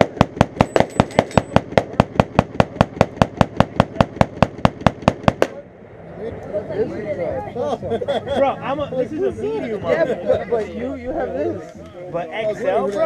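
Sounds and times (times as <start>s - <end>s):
rapid gunshots: 0.0s - 5.6s.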